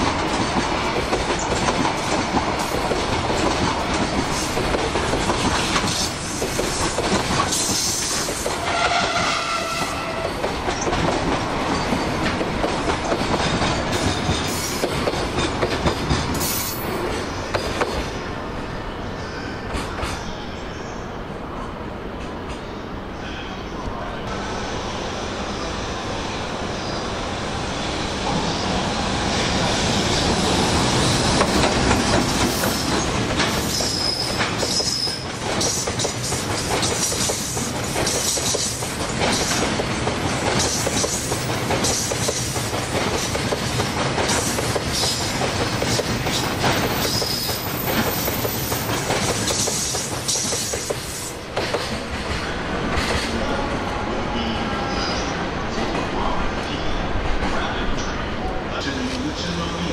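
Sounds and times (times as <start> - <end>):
train wheels clacking over rail joints: 0.0 - 18.1, 30.9 - 53.4
high wheel squeals: 33.6 - 35.2.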